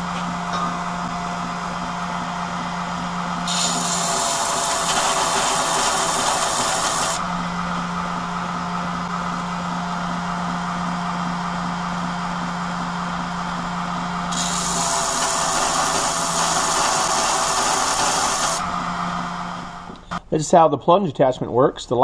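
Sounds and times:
belt grinder motor humming: 0:03.4 - 0:09.5, 0:14.3 - 0:20.1
knife blade grinding hiss: 0:03.5 - 0:07.2.

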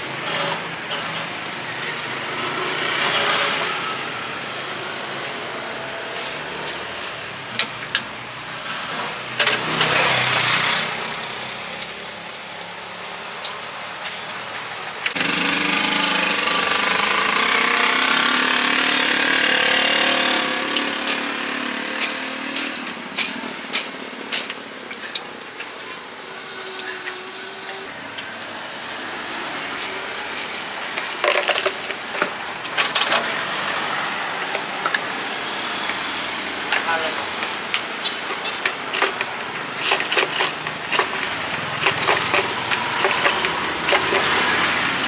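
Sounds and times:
traffic passing: 0:00.0 - 0:45.0
utensils clicking on metal: 0:38.3 - 0:44.6.

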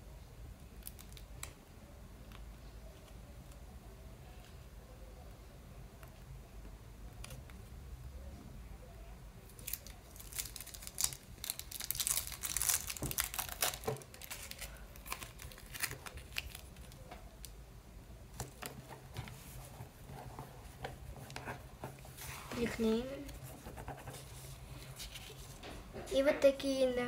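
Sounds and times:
paper and tape crinkling: 0:09.5 - 0:17.4, 0:18.4 - 0:25.8.

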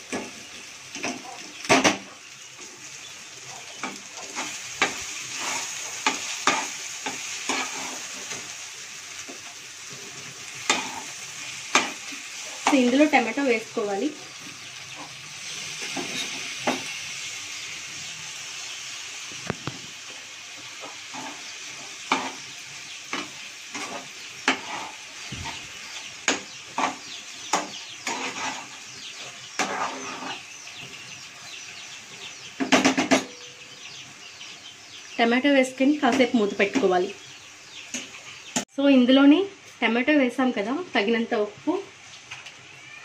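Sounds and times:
light sizzle: 0:00.0 - 0:43.0
spatula scraping frying pan: 0:03.7 - 0:08.5, 0:10.1 - 0:13.0, 0:20.8 - 0:22.5, 0:23.1 - 0:30.6.

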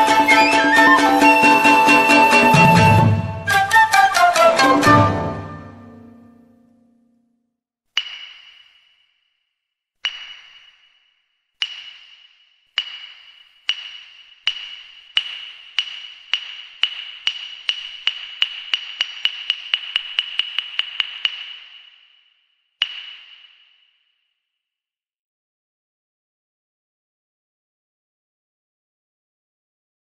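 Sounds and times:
high ringing ping: 0:08.0 - 0:09.3.

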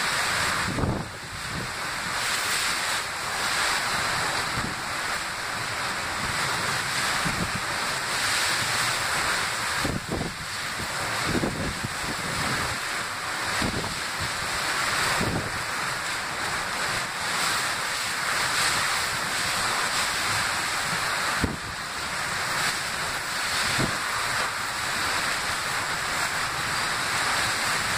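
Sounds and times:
hurricane wind: 0:00.0 - 0:27.9
torrential rain: 0:00.0 - 0:27.9
wind buffeting microphone: 0:00.5 - 0:01.8, 0:09.8 - 0:12.8, 0:15.0 - 0:15.6, 0:20.9 - 0:21.8, 0:23.5 - 0:24.1.

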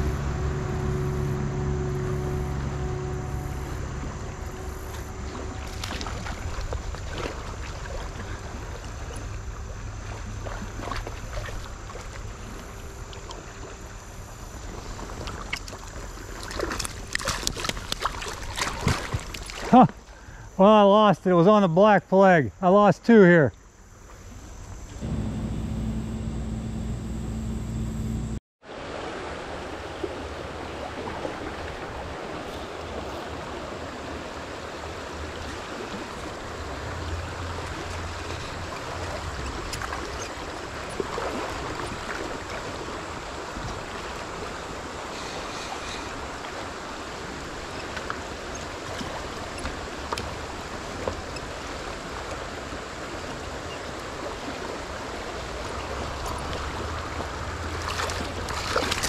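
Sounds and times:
low rumble: 0:00.0 - 0:07.0, 0:24.9 - 0:28.4
stream rushing over stones: 0:28.7 - 0:59.0.

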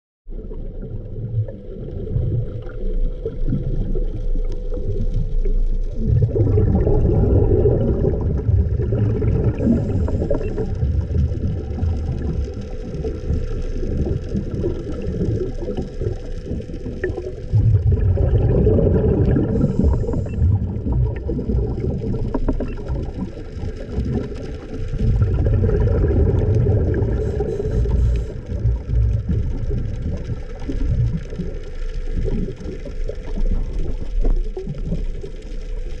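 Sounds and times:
faint steady hum: 0:00.3 - 0:36.0
underwater low rumble: 0:00.3 - 0:36.0.

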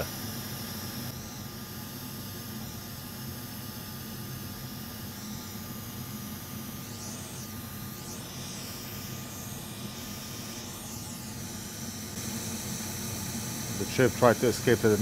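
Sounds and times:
hot air blower hissing: 0:00.0 - 0:01.3, 0:05.1 - 0:15.0.

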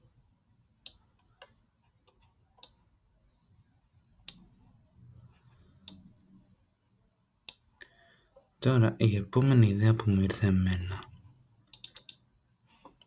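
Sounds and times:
computer mouse clicks: 0:00.8 - 0:02.8, 0:04.2 - 0:04.5, 0:05.8 - 0:06.2, 0:07.4 - 0:07.7, 0:11.7 - 0:12.2.

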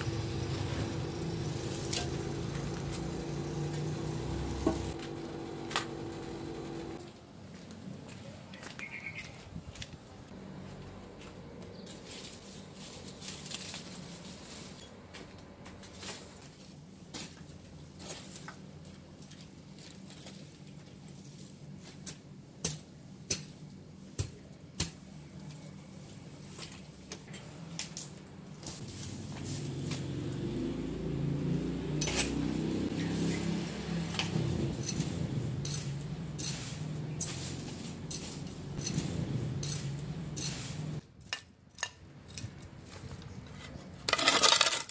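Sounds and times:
footsteps through leaf litter: 0:00.0 - 0:06.0, 0:10.8 - 0:14.9, 0:15.7 - 0:22.0, 0:28.6 - 0:30.4, 0:35.0 - 0:41.0
low hum: 0:00.0 - 0:07.0
metal tool scraping weeds: 0:00.0 - 0:07.0, 0:32.0 - 0:42.4, 0:44.0 - 0:44.9.

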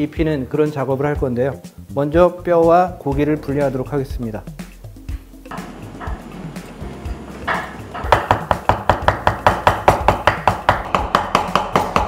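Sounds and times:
knife chopping meat on wooden board: 0:07.5 - 0:12.0.

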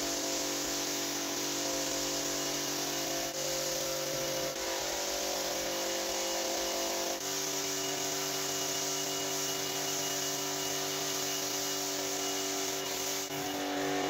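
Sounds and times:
pressure washer pump humming: 0:00.0 - 0:14.0
water jet spraying onto rug: 0:00.0 - 0:14.0.

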